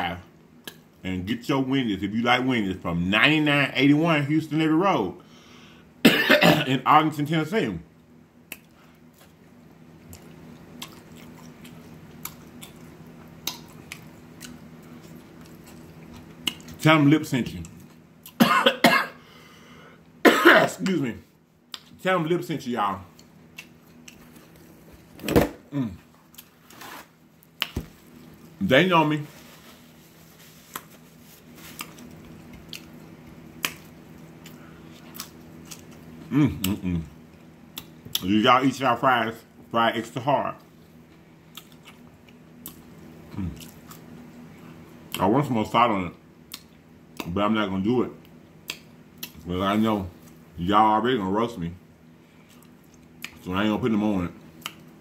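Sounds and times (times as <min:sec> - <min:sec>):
low steady hum: 0:00.0 - 0:55.0
chewing fries: 0:08.4 - 0:18.4, 0:23.0 - 0:24.9, 0:30.5 - 0:38.3, 0:40.6 - 0:45.2, 0:48.2 - 0:49.5, 0:52.4 - 0:53.5, 0:54.4 - 0:55.0
wet mouth smacks chewing: 0:41.5 - 0:42.9, 0:48.6 - 0:49.4.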